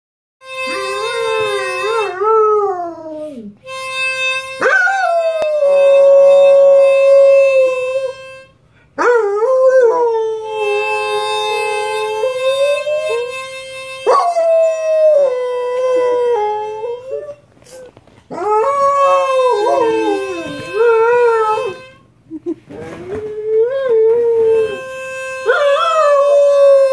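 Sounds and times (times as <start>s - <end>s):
harmonica notes: 0.4s - 2.4s, 3.6s - 8.9s, 10.3s - 23.0s, 23.8s - 26.9s
dog howling: 18.3s - 21.8s, 25.5s - 26.9s.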